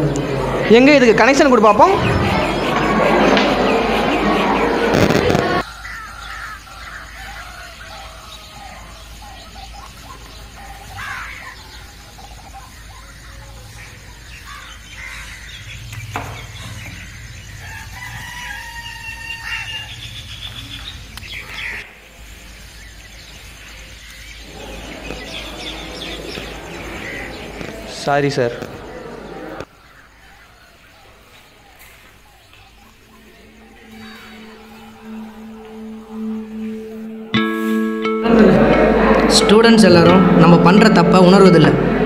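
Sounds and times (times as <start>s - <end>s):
birds calling: 0.0s - 38.2s
rooster crowing: 1.9s - 9.0s, 16.7s - 20.1s, 24.4s - 29.7s, 33.1s - 37.4s.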